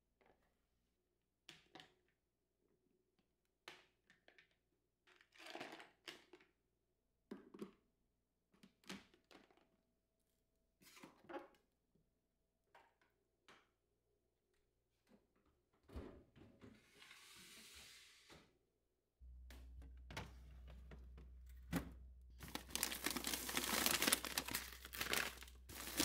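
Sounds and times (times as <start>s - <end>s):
plastic containers set down: 20.1s - 26.0s.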